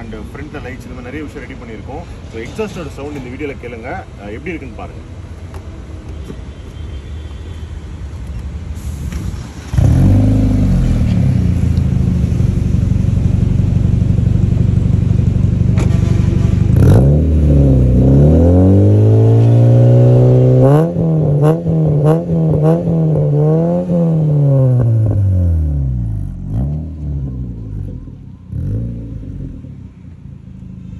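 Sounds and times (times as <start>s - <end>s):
car engine revving: 9.7s - 30.9s.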